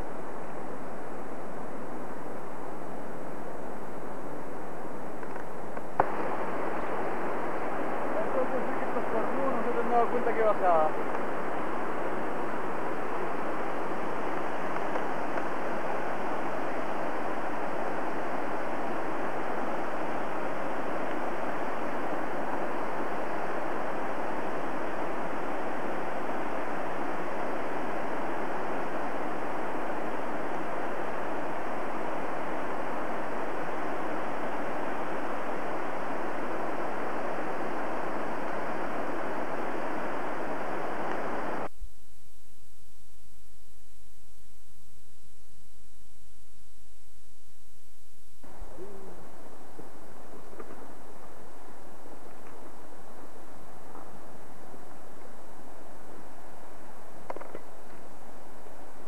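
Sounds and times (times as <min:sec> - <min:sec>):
stream rushing over rocks: 0:06.0 - 0:41.7.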